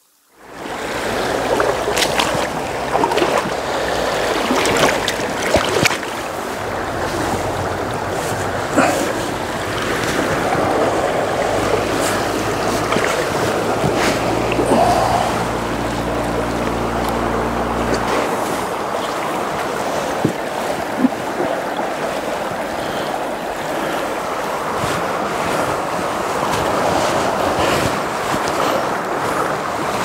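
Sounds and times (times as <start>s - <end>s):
river rushing over rocks: 0.4s - 30.0s
small water splashes: 0.5s - 30.0s.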